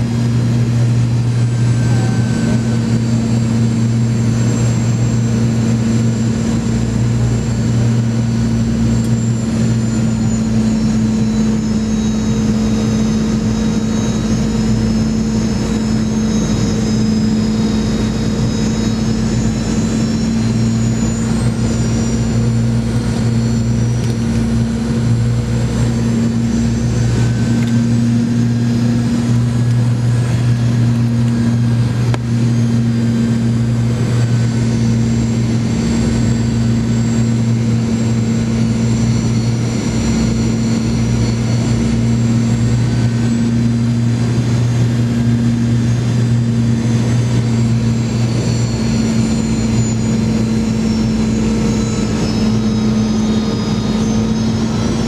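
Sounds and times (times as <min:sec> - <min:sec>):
jet engine drone with high whine: 0:00.0 - 0:55.0.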